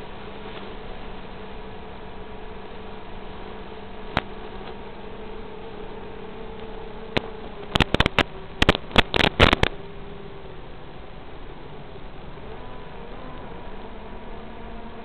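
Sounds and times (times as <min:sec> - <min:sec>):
drone motors buzzing: 0:00.9 - 0:15.0
radio static crackles: 0:04.0 - 0:09.9.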